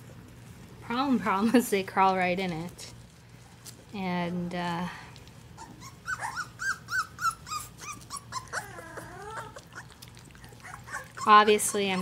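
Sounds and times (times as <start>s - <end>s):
puppies lapping food: 5.1s - 12.0s
puppies whining: 5.5s - 12.0s.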